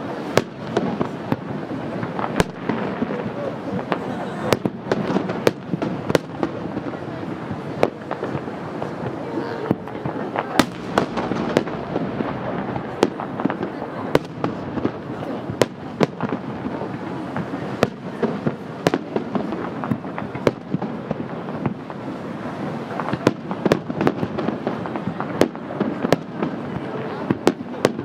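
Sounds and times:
firework shells bursting: 0:00.4 - 0:22.1.

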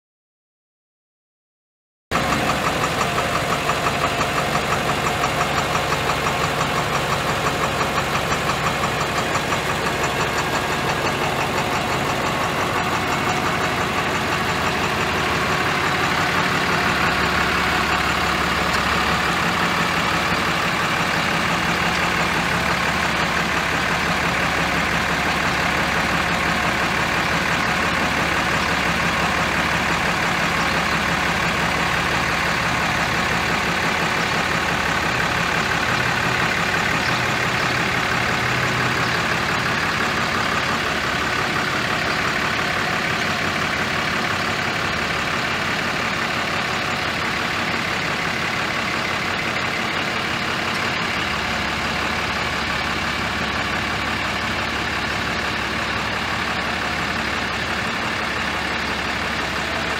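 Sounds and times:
diesel engine idling: 0:02.1 - 0:59.9.

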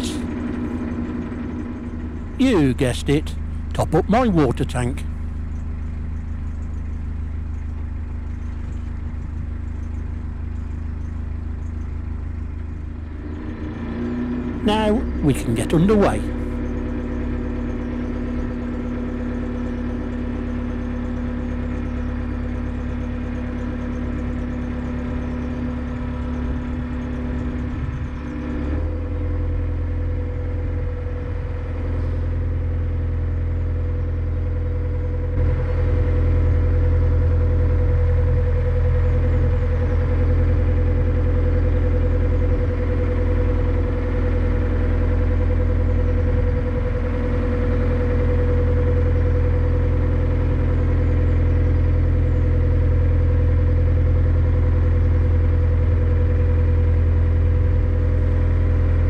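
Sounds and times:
boat diesel engine running: 0:00.0 - 0:59.0.

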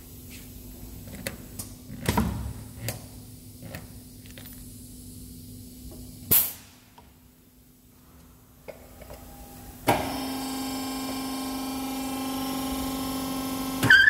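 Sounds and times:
machine humming: 0:08.7 - 0:13.9.

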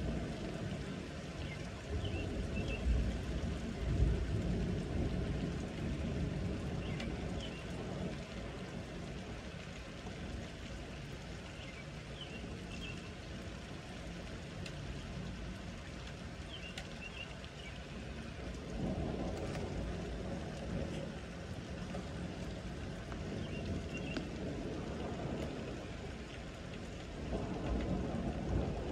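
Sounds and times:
thunder rumble: 0:00.0 - 0:11.0, 0:17.8 - 0:28.9
heavy rain: 0:00.0 - 0:28.9.

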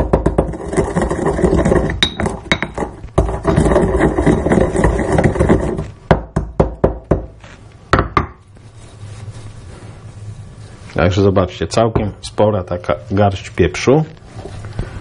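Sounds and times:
pestle grinding peppercorns: 0:00.0 - 0:07.4
pestle strikes in stone mortar: 0:00.0 - 0:07.4, 0:08.0 - 0:08.4.

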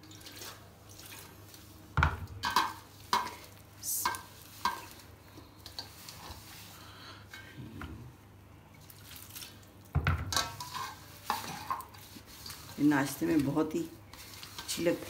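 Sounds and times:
hand mixing dough in bowl: 0:10.6 - 0:15.0.

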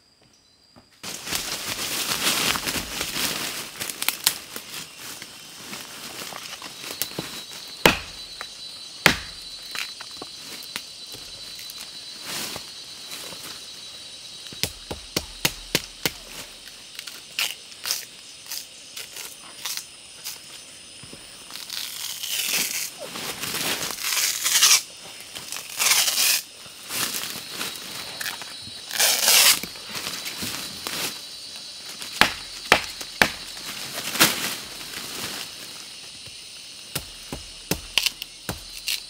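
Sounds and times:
high insect drone: 0:00.0 - 0:39.0
rustling: 0:01.0 - 0:10.6.

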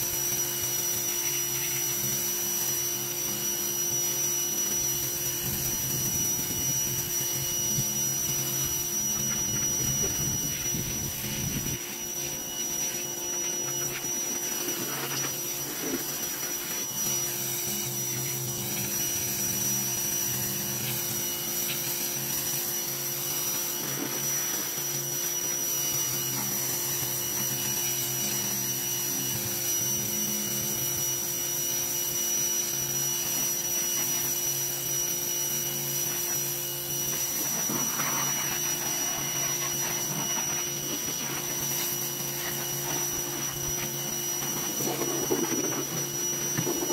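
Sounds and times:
pressure washer motor whine: 0:00.0 - 0:46.9
water jet hissing on metal: 0:37.2 - 0:46.9.

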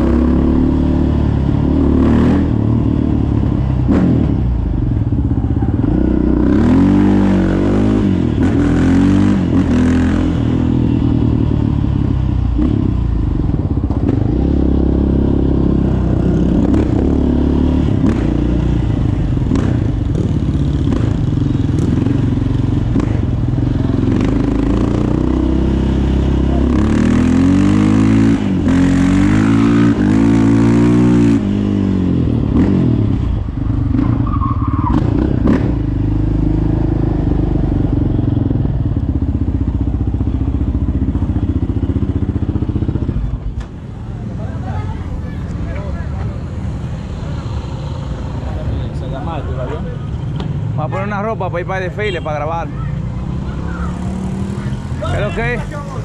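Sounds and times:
quad bike engine revving: 0:00.0 - 0:40.1, 0:52.2 - 0:56.0.

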